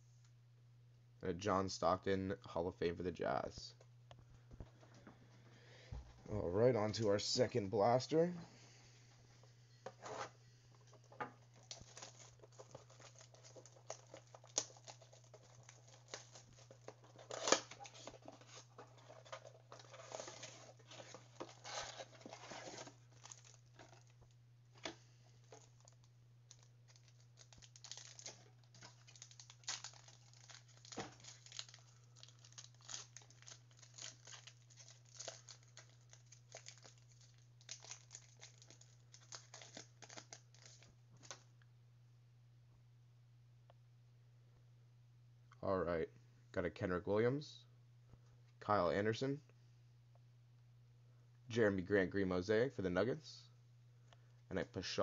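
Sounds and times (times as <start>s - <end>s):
plastic wrapping tearing and crinkling: 10.0s - 41.4s.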